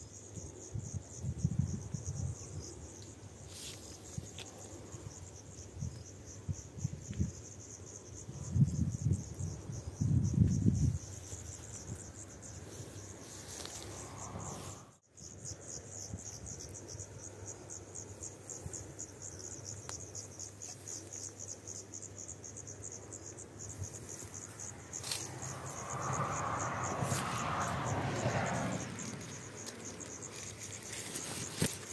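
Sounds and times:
crickets chirping: 0:00.0 - 0:31.9
loud rushing noise: 0:25.3 - 0:29.4.

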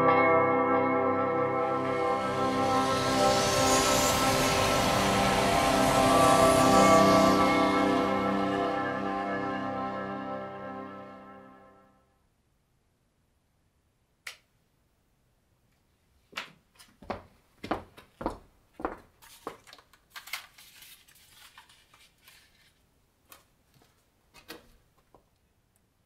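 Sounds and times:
cycling shoe footsteps on concrete: 0:16.8 - 0:19.7.

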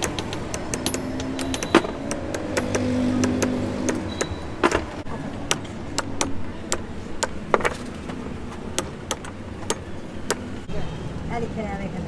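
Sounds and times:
hammer tapping on metal: 0:00.0 - 0:04.8.

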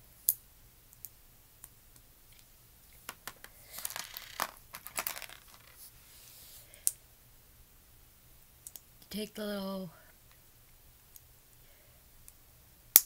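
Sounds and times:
plastic building pieces clicking: 0:03.1 - 0:05.8.

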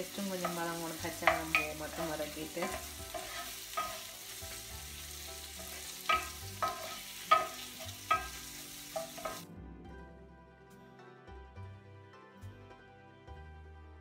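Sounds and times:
vegetables sizzling: 0:00.0 - 0:09.4
soft background music: 0:00.0 - 0:14.0
wooden spatula scraping pan: 0:00.4 - 0:09.4.

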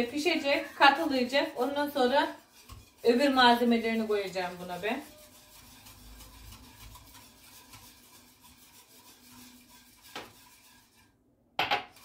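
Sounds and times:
utensil scraping a pot: 0:00.0 - 0:12.0
utensil knocking a pot: 0:11.6 - 0:12.0.

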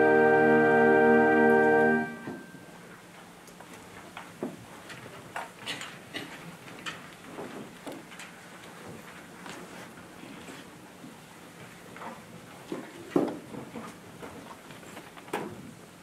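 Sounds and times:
choir orchestra and organ chord: 0:00.0 - 0:02.6
small clicks and rustles: 0:03.0 - 0:15.8.

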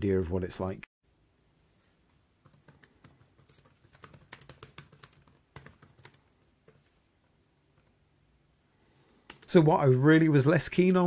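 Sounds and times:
laptop keyboard typing: 0:02.4 - 0:08.0, 0:09.1 - 0:09.5.

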